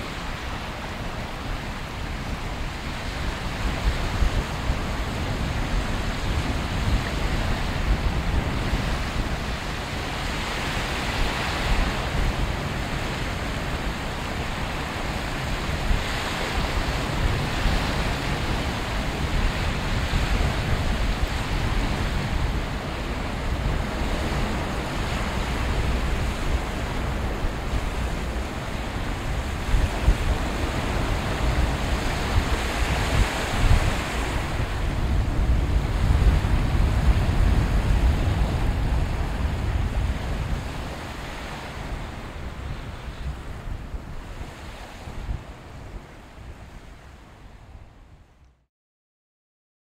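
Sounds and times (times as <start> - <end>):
small waves washing on shore: 0.0 - 47.9
wind buffeting microphone: 0.0 - 48.4.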